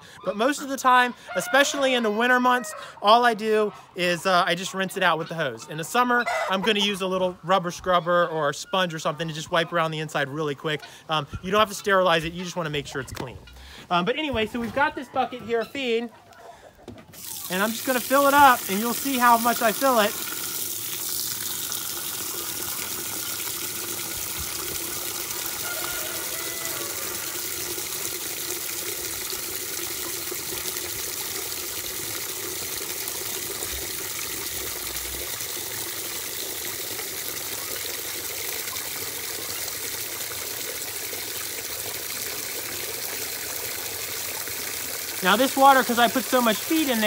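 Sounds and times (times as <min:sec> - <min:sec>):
hose water pouring into bucket: 0:17.2 - 0:47.0.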